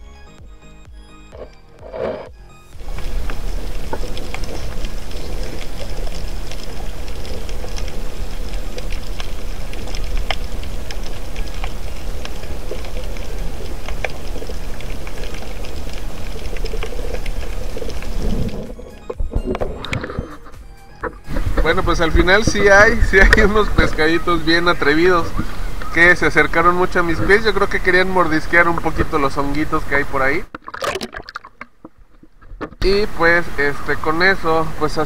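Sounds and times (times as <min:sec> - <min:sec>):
sharp crackling clicks: 0:01.3 - 0:29.7
underwater water rumble: 0:01.8 - 0:28.0.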